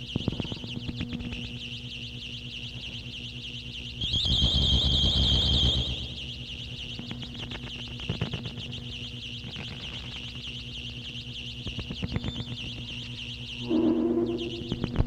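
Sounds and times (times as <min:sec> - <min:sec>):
scattered crackles: 0:00.0 - 0:15.0
warbling high electronic tone: 0:09.4 - 0:15.0.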